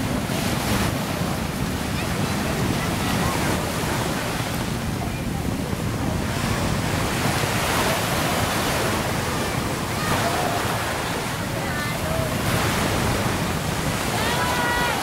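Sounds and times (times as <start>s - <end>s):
sea waves washing on shore: 0.0s - 15.0s
wind buffeting microphone: 0.0s - 15.0s.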